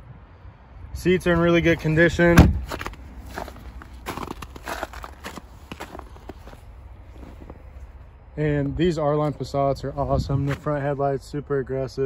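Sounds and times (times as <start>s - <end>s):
footsteps on slushy snow: 2.6s - 8.0s.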